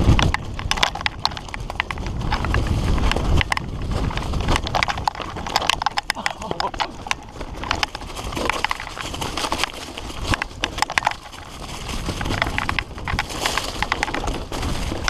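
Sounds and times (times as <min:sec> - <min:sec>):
mountain bike rattling on rough trail: 0:00.0 - 0:15.0
wind rumbling on microphone: 0:00.0 - 0:15.0.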